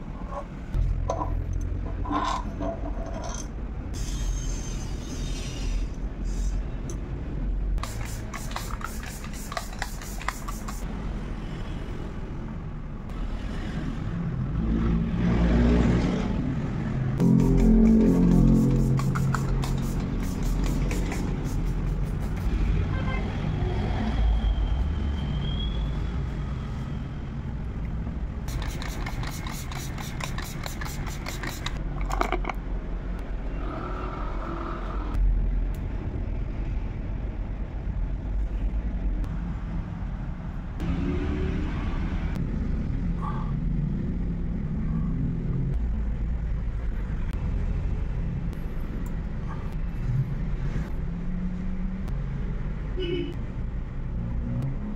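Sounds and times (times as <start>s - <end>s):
low rumble of road traffic: 0.0s - 54.9s.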